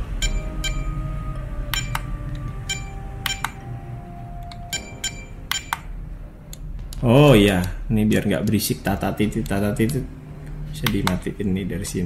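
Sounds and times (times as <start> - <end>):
short electronic key beeps: 4.7 - 5.9.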